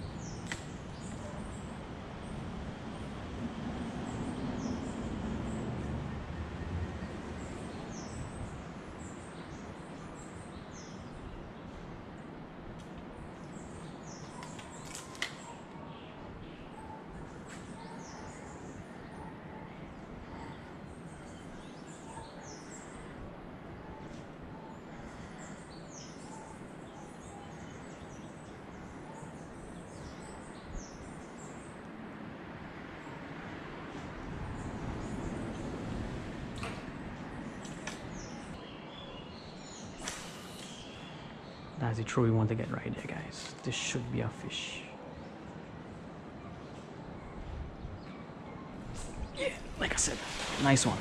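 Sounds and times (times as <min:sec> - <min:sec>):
small birds chirping: 0:00.0 - 0:03.2, 0:07.0 - 0:32.0, 0:33.0 - 0:51.0
outdoor background hiss: 0:00.0 - 0:51.0
steady background hiss: 0:48.8 - 0:51.0.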